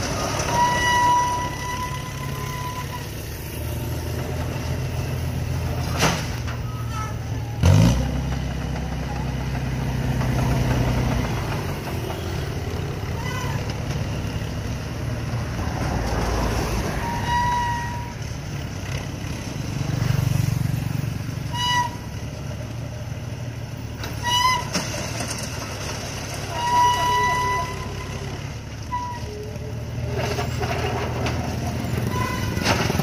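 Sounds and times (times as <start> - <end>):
short high-pitched squeals: 0.0 - 4.3, 26.4 - 31.0, 31.9 - 33.0.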